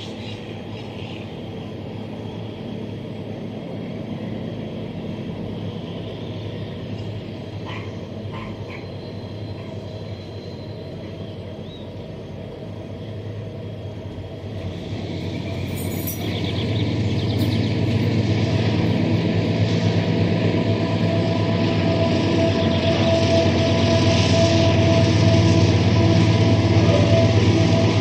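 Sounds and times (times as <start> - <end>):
locomotive engine drone: 0.0 - 28.0
rolling train noise: 0.0 - 28.0.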